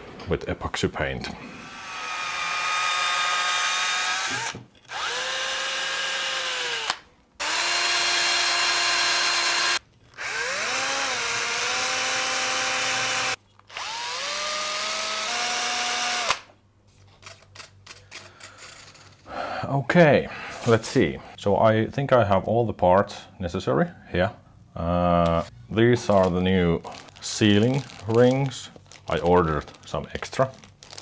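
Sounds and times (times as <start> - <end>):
cordless drill whining: 1.4 - 16.4
drill click: 1.6 - 16.5.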